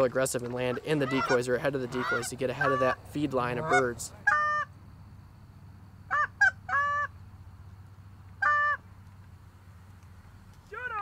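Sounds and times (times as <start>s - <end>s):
goose honking: 0.6s - 4.7s, 8.4s - 8.8s.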